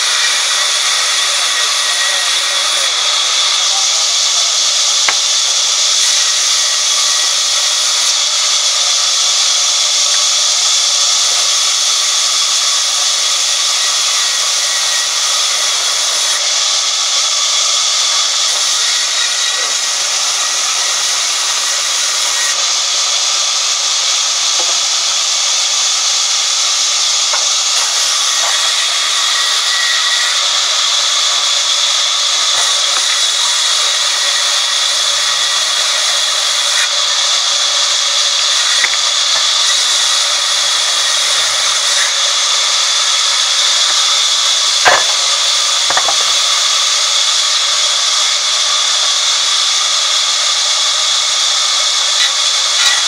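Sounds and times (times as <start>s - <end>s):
band saw ripping timber: 0.0s - 8.8s, 23.8s - 53.0s.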